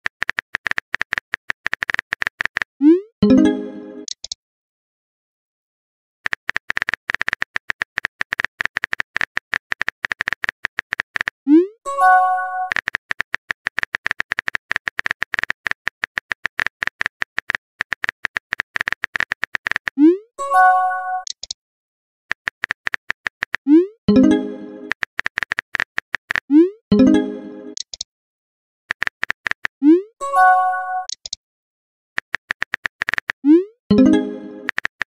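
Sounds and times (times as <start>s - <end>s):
phone keyboard typing clicks: 0.0s - 2.7s, 4.0s - 4.4s, 6.2s - 11.4s, 12.6s - 20.0s, 21.2s - 21.6s, 22.3s - 23.7s, 24.3s - 26.6s, 27.7s - 28.1s, 28.9s - 29.8s, 31.0s - 31.4s, 32.2s - 33.4s, 34.0s - 35.0s.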